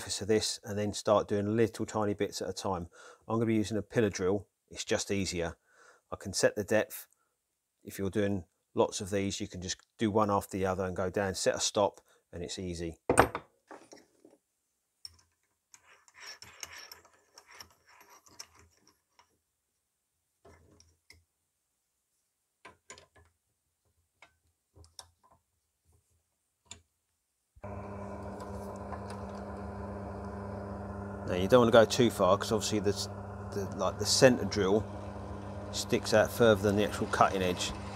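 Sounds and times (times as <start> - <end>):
drill motor humming: 27.6 - 37.9.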